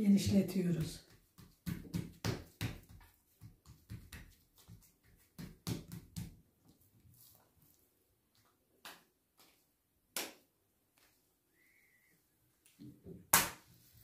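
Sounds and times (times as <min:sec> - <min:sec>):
hands patting dough on countertop: 0:00.2 - 0:06.9.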